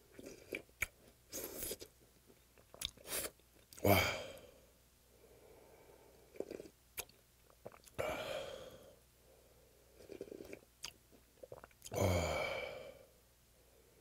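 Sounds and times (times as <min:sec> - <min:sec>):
lip and swallowing sounds: 0:02.6 - 0:03.8, 0:06.3 - 0:08.0, 0:10.0 - 0:12.0
person slurping soup: 0:06.3 - 0:06.7, 0:10.0 - 0:10.6.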